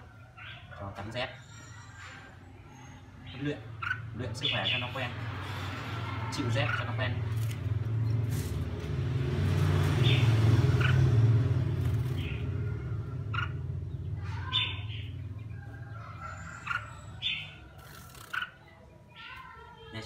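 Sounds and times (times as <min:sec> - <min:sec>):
bird chirps: 0:00.0 - 0:08.2, 0:09.9 - 0:19.6
vehicle engine rumbling: 0:03.4 - 0:18.2.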